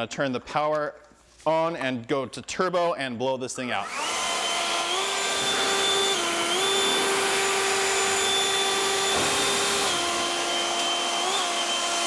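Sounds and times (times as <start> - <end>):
leaf blower whine and air rush: 3.8 - 12.0.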